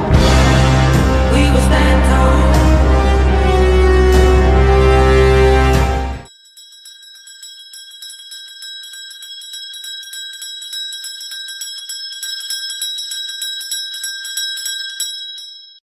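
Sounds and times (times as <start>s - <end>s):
school bell ringing: 6.2s - 15.8s.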